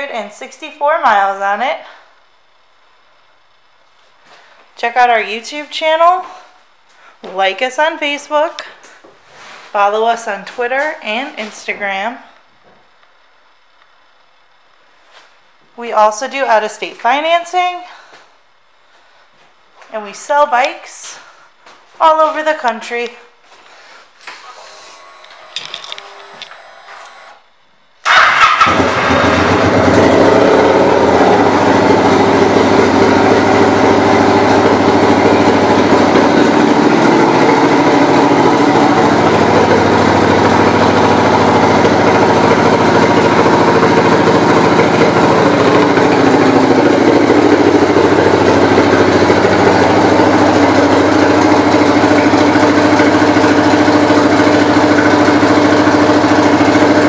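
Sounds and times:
motorcycle engine starting and idling: 24.3s - 27.4s, 28.0s - 57.0s.

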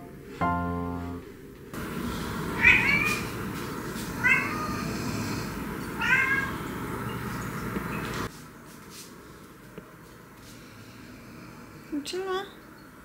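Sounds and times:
low steady hiss: 0.0s - 3.6s
cat meowing: 2.6s - 3.3s, 4.2s - 5.0s, 6.0s - 6.6s.

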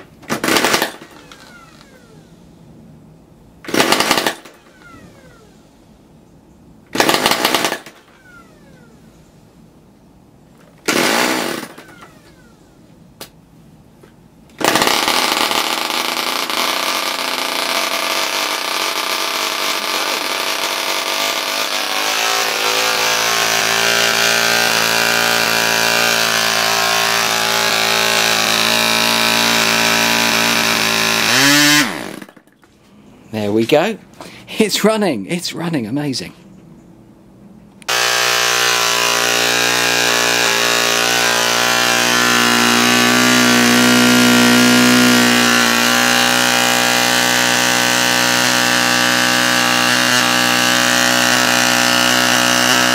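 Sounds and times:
electric starter spinning: 10.8s - 12.6s, 14.5s - 32.4s, 37.8s - 52.9s
model engine buzzing: 14.6s - 32.4s, 37.8s - 52.9s.

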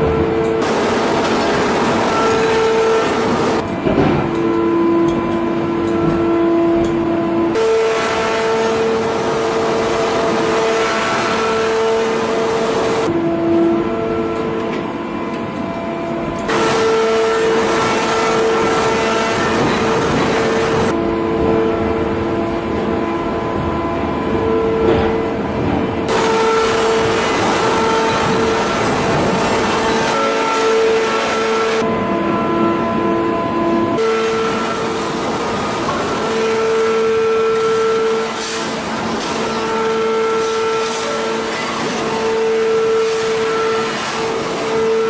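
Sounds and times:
machinery droning hum: 0.0s - 45.0s.

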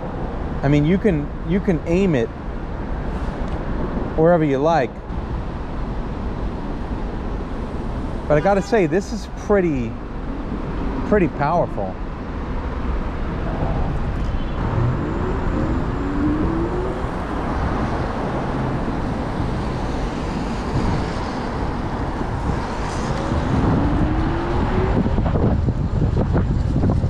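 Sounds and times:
city traffic: 0.0s - 27.0s
rushing wind: 0.0s - 27.0s
tyres on wet road: 9.3s - 27.0s
low whine rising in pitch: 13.4s - 17.5s.

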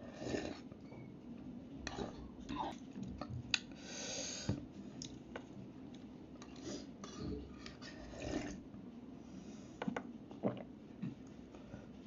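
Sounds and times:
slurping and mouth sounds: 7.9s - 8.6s.

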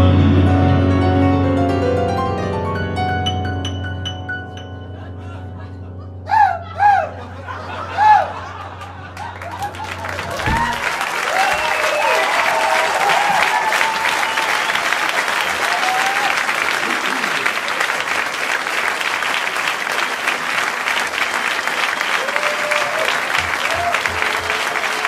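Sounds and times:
audience cheering: 6.3s - 25.0s
audience applauding: 7.6s - 25.0s.

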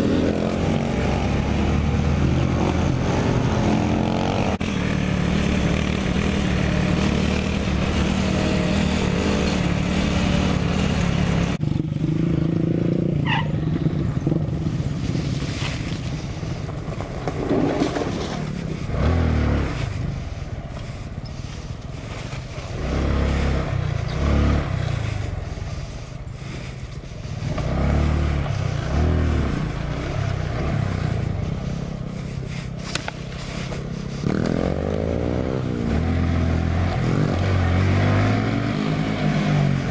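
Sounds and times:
mini bike engine revving: 0.0s - 14.5s, 22.7s - 39.9s
rumbles and knocks from rough ground: 15.1s - 20.0s.

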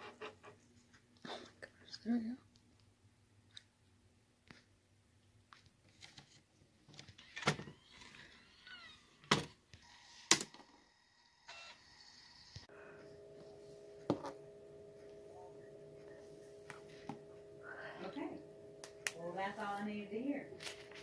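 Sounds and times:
low two-tone hum: 12.7s - 21.0s.

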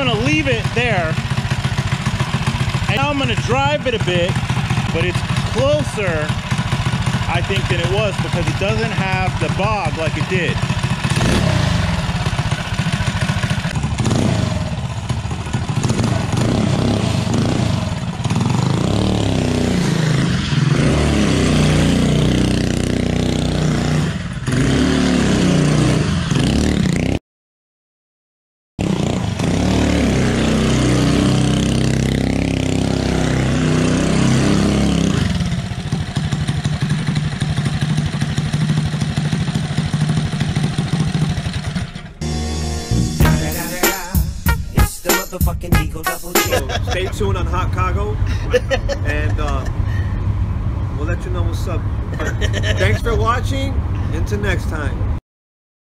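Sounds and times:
small engine revving: 11.0s - 12.1s, 13.7s - 14.8s, 15.7s - 27.1s, 28.8s - 35.7s.

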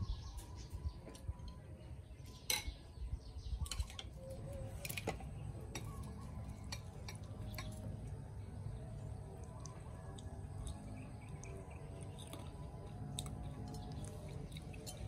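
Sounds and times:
low steady rumble: 4.5s - 15.0s.

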